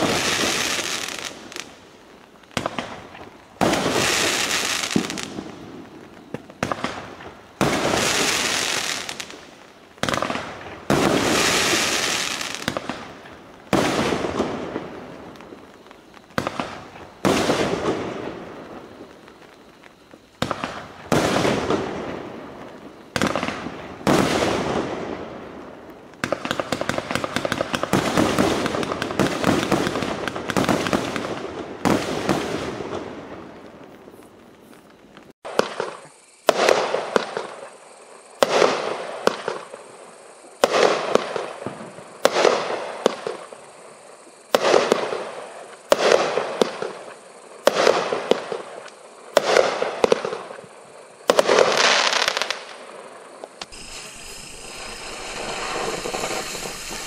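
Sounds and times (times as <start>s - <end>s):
fireworks shells firing: 53.6s - 57.0s.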